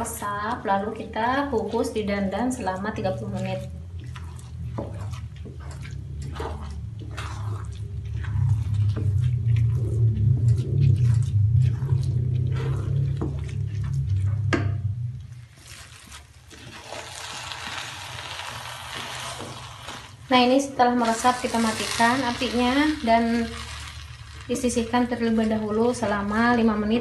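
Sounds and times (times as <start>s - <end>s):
low hum: 0.0s - 27.0s
wet squelching: 0.0s - 27.0s
spatula scraping rice in pan: 15.6s - 20.3s, 21.0s - 26.4s.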